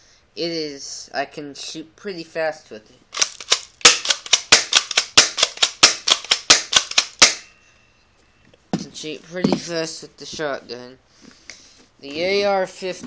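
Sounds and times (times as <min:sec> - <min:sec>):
airsoft shotgun racked and fired: 0:03.1 - 0:07.4.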